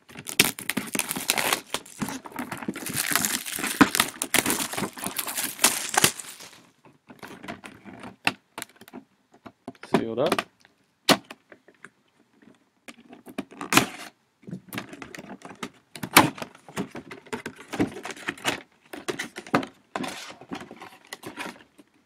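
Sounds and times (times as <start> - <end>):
wrapping crackling: 0.0 - 6.7
cardboard rustling and scraping: 0.1 - 6.8, 19.1 - 21.7.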